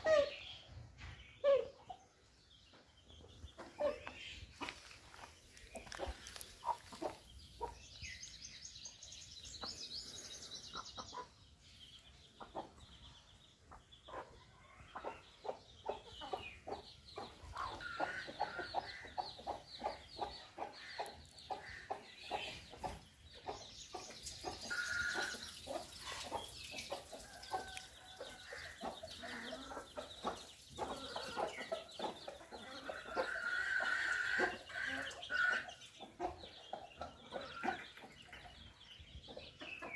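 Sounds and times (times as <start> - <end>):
chickens clucking: 0.0 - 39.9.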